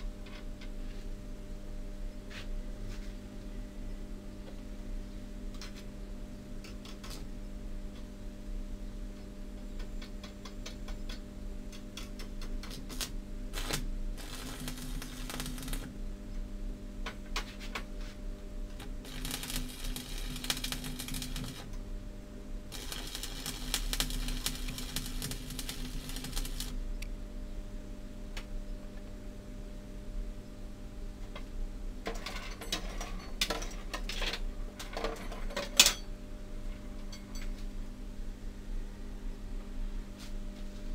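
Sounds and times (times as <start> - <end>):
low steady hum: 0.0 - 40.9
welding arc crackling: 12.6 - 15.9, 18.7 - 21.7, 22.7 - 26.8.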